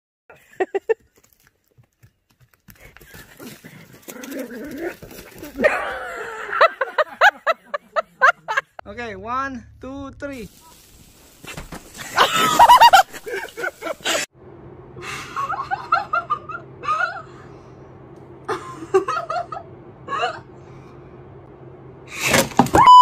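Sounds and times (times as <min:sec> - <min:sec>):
woman laughing and giggling: 0:00.3 - 0:01.0, 0:05.4 - 0:08.8, 0:12.0 - 0:14.3, 0:15.2 - 0:17.4
low hum: 0:08.8 - 0:11.4, 0:12.0 - 0:23.0.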